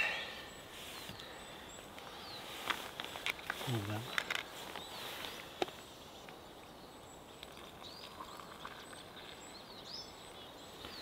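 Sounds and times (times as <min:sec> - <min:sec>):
water pouring into coffee press: 0:07.3 - 0:09.5.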